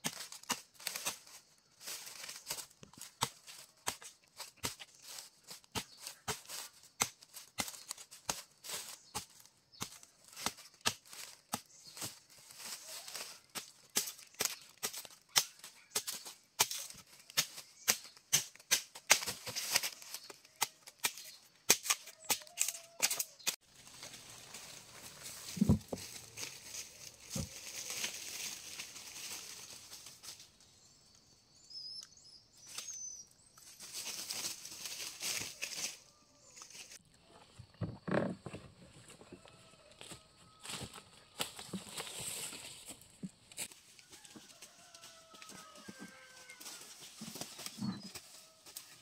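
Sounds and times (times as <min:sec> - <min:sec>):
dry vegetation crackling and snapping: 0:00.0 - 0:30.5, 0:33.6 - 0:36.0, 0:39.6 - 0:49.0
high bird chirps: 0:30.8 - 0:33.7.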